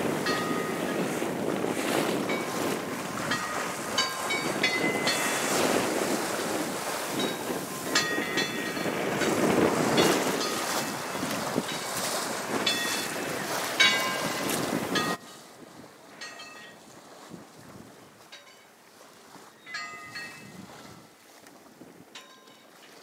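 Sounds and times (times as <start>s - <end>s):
wind on microphone: 0.0s - 18.3s, 18.9s - 22.2s
choppy water: 0.0s - 23.0s
gong buoy ringing: 0.2s - 1.2s, 19.7s - 21.0s.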